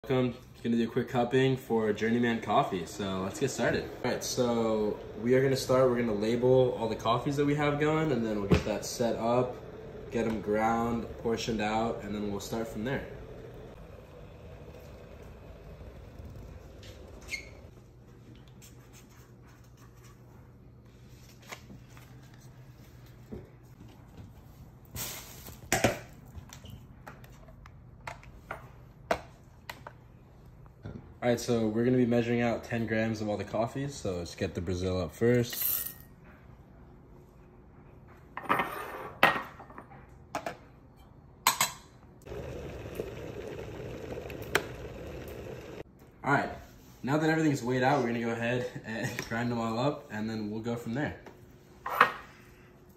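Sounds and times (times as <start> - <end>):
low steady hum: 0.3 - 18.4
electric kettle heating: 2.1 - 17.7, 42.2 - 45.9.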